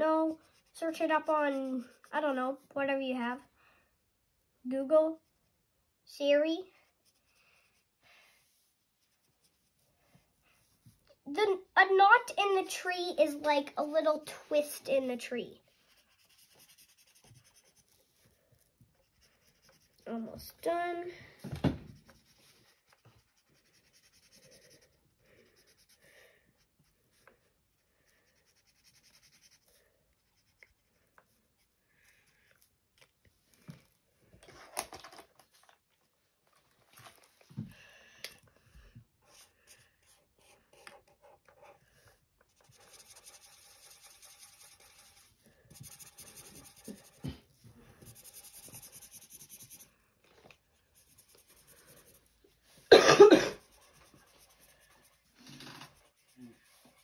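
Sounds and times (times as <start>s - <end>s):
marker pen rubbing on paper: 0.0s - 2.7s, 6.9s - 11.0s, 15.6s - 20.1s, 21.9s - 31.8s, 42.5s - 49.9s, 50.7s - 52.8s, 53.5s - 57.0s.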